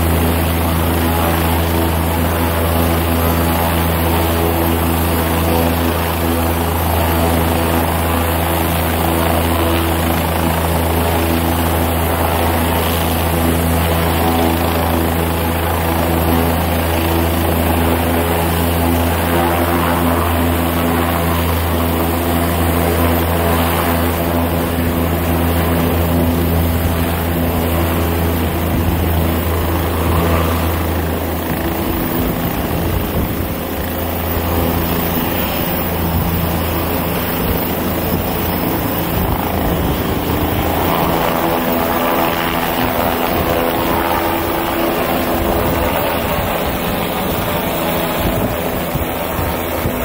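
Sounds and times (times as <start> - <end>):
helicopter engine and rotor: 0.0 - 50.0.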